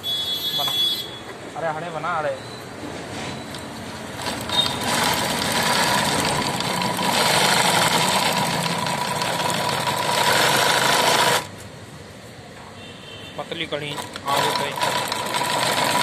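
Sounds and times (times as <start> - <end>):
industrial sewing machine stitching: 4.0 - 11.5, 13.8 - 16.0.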